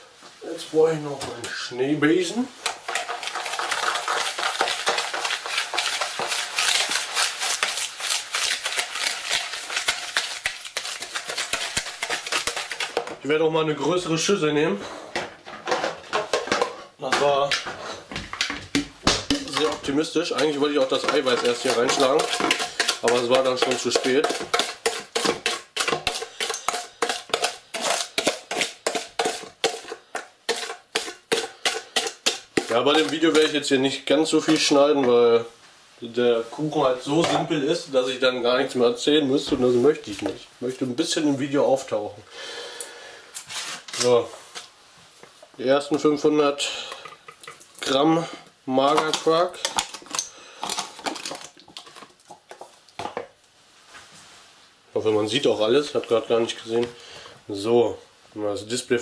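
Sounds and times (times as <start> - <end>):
whisk beating in plastic bowl: 2.6 - 13.2, 18.7 - 34.8.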